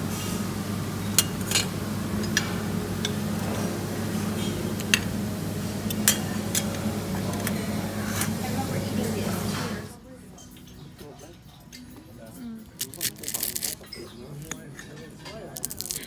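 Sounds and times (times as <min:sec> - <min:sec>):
cutlery and crockery clinking: 0:10.4 - 0:16.0.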